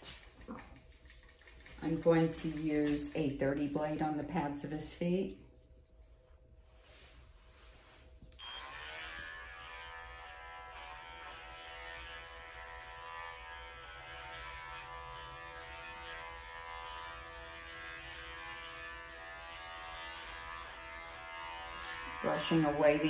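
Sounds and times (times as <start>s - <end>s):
electric clippers running: 8.4s - 23.0s.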